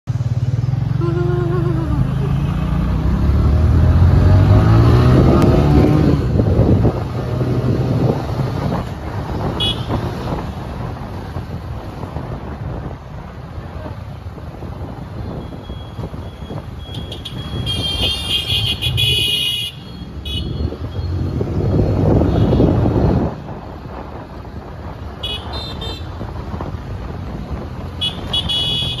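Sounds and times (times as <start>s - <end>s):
motorcycle and car engines: 0.0s - 29.0s.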